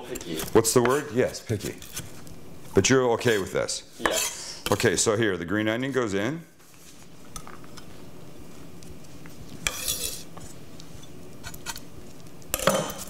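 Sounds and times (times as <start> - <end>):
knife scraping: 0.1 - 2.3, 3.2 - 4.9, 9.6 - 10.6.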